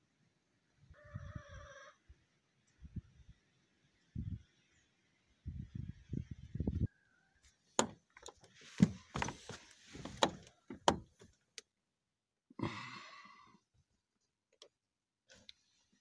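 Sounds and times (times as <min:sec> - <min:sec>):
knocks and thumps in car seat: 0:08.7 - 0:11.3.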